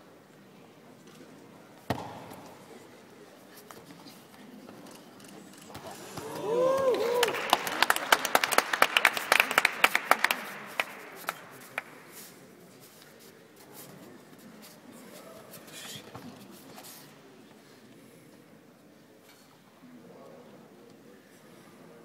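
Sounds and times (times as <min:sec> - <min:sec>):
people clapping in a hall: 0:06.2 - 0:12.4.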